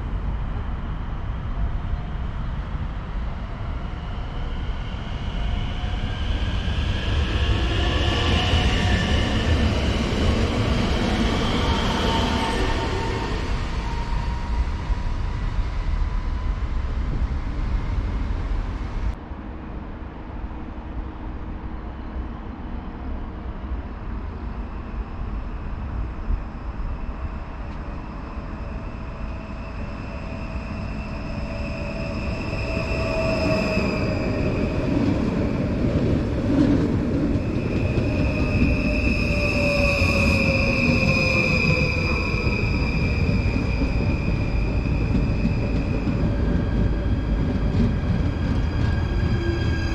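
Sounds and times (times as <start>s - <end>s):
electric train pulling in: 0.0s - 49.9s
loud train noise: 0.0s - 49.9s
brake squeal: 37.4s - 46.0s.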